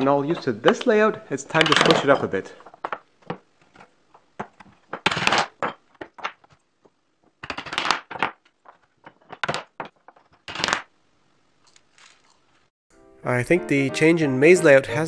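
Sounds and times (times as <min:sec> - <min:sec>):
wooden blocks knocking on a board: 0:04.4 - 0:10.8.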